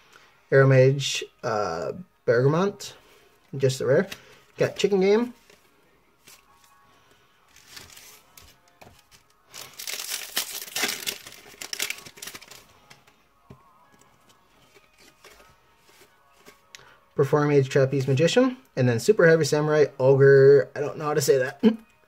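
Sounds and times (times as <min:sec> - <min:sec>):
foil wrapper crinkling and tearing: 0:07.5 - 0:12.8.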